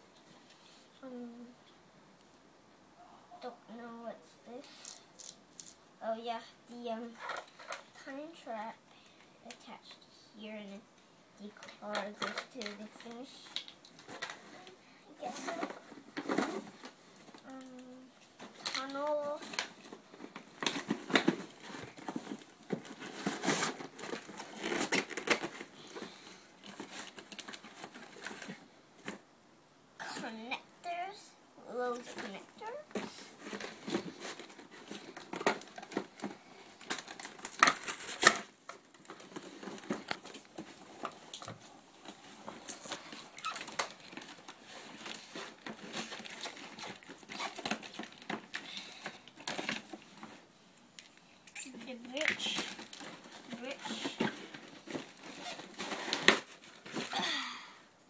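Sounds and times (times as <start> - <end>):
cardboard box rustling and crinkling: 18.4 - 29.2, 32.1 - 50.5, 51.8 - 57.1.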